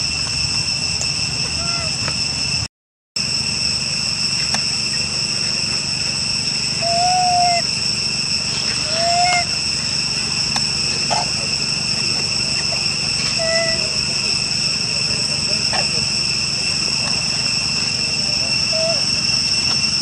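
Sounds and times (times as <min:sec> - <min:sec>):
high-pitched insect chorus: 0:00.0 - 0:20.0
short clear calls: 0:06.8 - 0:07.7, 0:08.5 - 0:09.8, 0:10.6 - 0:19.8.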